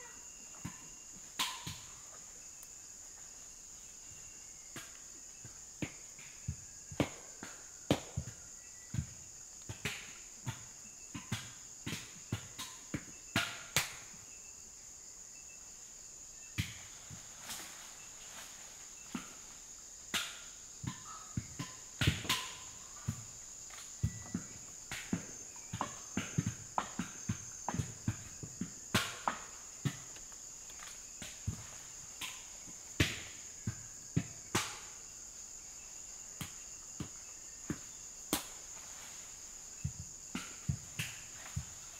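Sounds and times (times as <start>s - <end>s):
sharp knocks and cracks: 0.6s - 1.9s, 9.6s - 14.1s, 19.1s - 21.0s, 21.6s - 35.0s, 37.7s - 39.1s.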